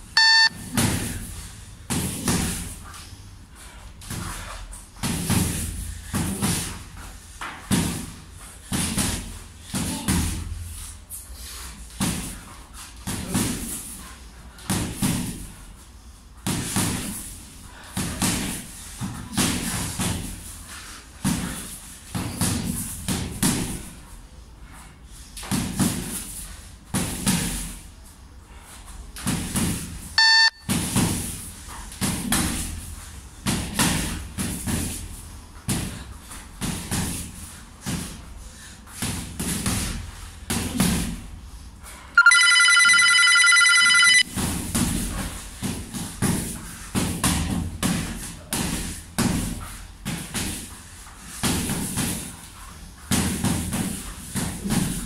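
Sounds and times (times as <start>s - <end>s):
brief beep: 0.2s - 0.6s, 30.2s - 30.7s, 42.2s - 44.2s.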